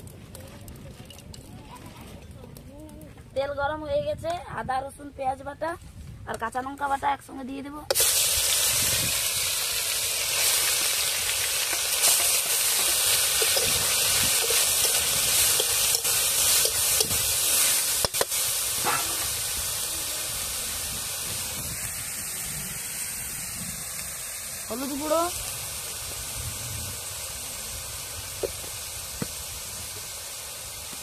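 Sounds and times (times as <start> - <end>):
paste sizzling in hot oil: 7.9 - 31.0.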